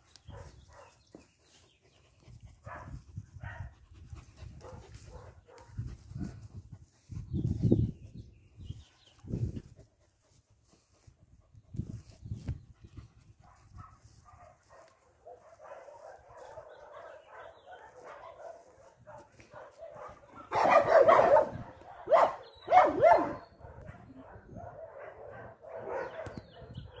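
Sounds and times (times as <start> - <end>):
dog barking: 0.3 - 1.0, 4.6 - 6.3, 13.4 - 27.0.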